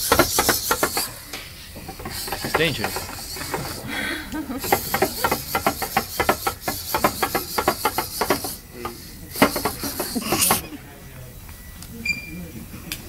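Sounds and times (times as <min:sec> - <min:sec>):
robot feet tapping on glass: 0:00.0 - 0:01.2, 0:01.8 - 0:03.8, 0:04.6 - 0:10.6
servo motors whirring: 0:00.0 - 0:10.6.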